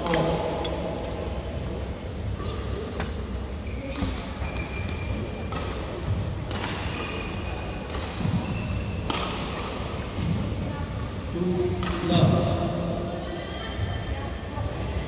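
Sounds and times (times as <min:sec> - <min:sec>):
low hum of large hall: 0:00.0 - 0:15.0
racket striking shuttlecock: 0:06.4 - 0:07.0, 0:09.0 - 0:10.3, 0:11.8 - 0:12.3.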